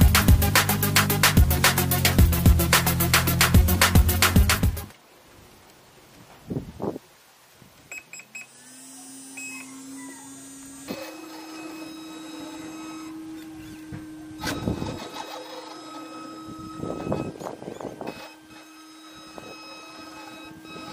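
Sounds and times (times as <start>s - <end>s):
steady electric whine: 8.0s - 20.9s.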